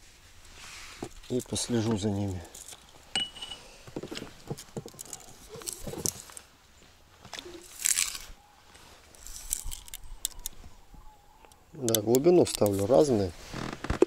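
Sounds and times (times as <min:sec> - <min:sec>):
fishing tackle clicks and rustles: 0:01.0 - 0:06.5, 0:07.3 - 0:10.6, 0:11.5 - 0:13.0
crunching scrape: 0:07.3 - 0:10.6.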